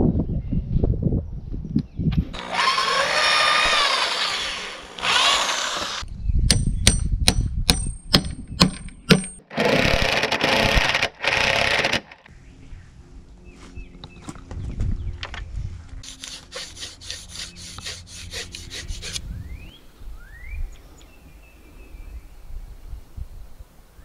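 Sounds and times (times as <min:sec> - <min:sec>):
power tool noise: 0:02.3 - 0:06.0, 0:09.5 - 0:12.3
hammer striking steel rod: 0:06.5 - 0:09.4.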